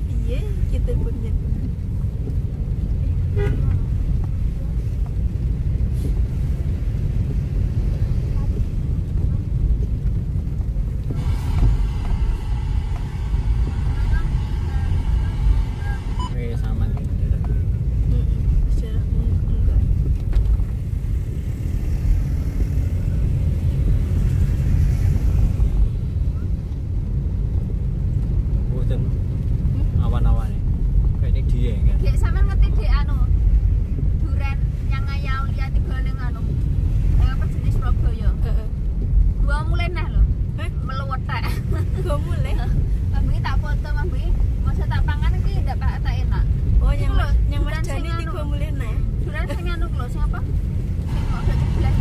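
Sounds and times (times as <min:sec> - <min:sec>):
car engine and tyres rumbling: 0:00.0 - 0:52.0
car horn toot: 0:03.3 - 0:03.8, 0:11.1 - 0:16.4.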